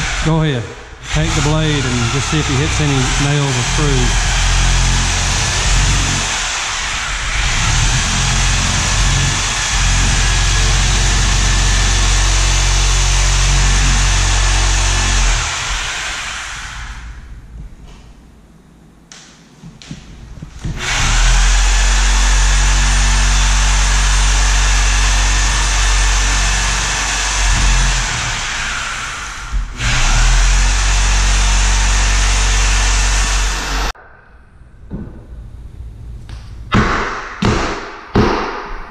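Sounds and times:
power saw cutting: 0.0s - 17.2s, 20.6s - 34.0s.

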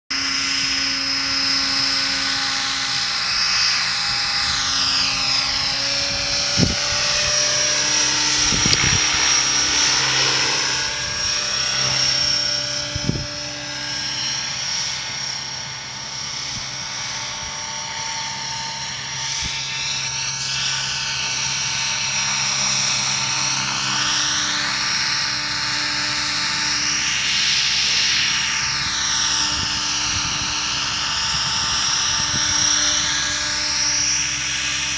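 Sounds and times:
rc helicopter engine whine: 0.1s - 34.9s.

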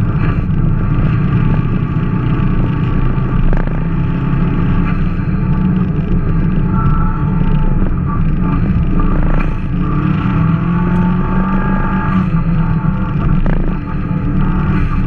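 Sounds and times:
car engine from inside cabin: 0.0s - 15.0s
rumble of tyres on snow: 0.0s - 15.0s.

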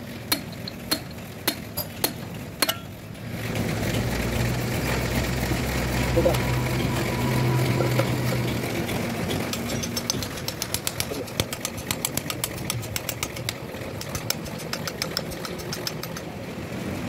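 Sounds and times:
hammer tapping on metal: 0.3s - 2.9s, 7.8s - 16.3s.

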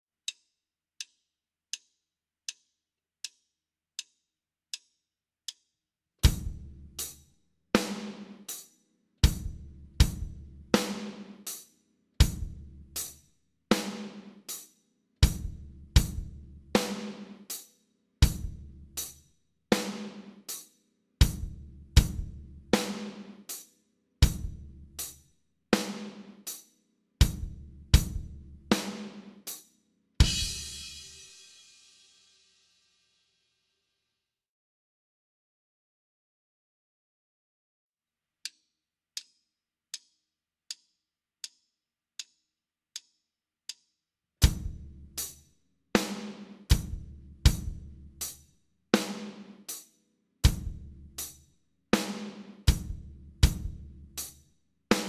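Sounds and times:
drum kit playing slow beat: 6.2s - 7.2s, 9.2s - 11.6s, 12.2s - 13.1s, 15.2s - 17.6s, 18.2s - 20.6s, 21.2s - 23.4s, 24.2s - 25.1s, 27.2s - 29.3s, 30.2s - 31.7s, 44.4s - 45.4s, 46.0s - 48.4s, 50.4s - 51.4s, 52.0s - 54.3s.

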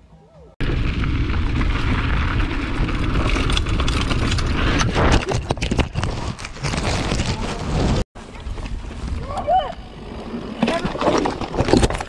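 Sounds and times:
bike rattling over rocks: 0.6s - 12.0s
bike crash knocks and scrapes: 10.5s - 12.0s.

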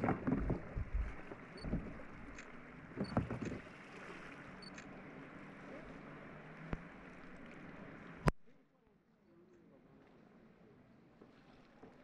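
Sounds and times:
water splashing around kayak: 0.0s - 8.4s, 11.1s - 12.0s.

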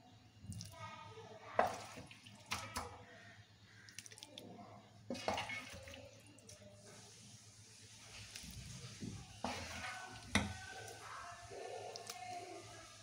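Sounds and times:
spoon scraping metal pot: 5.1s - 5.9s, 9.4s - 11.0s.

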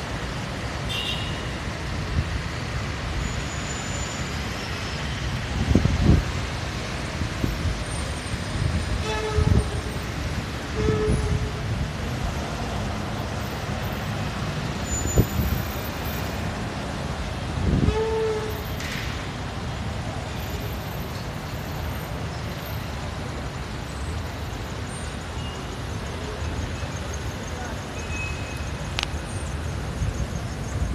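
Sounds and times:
city traffic rumble: 0.0s - 30.9s
vehicle horn toot: 0.9s - 1.5s, 9.0s - 9.8s, 10.8s - 11.6s.

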